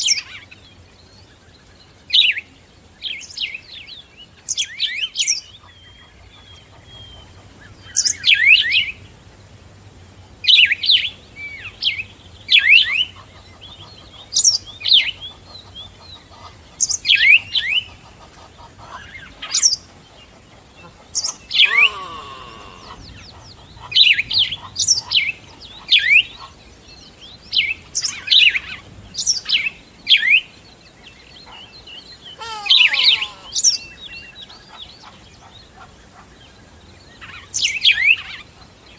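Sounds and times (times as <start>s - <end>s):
songbirds chirping: 0.0s - 38.9s
lower falling bird call: 21.2s - 24.5s, 32.2s - 34.1s.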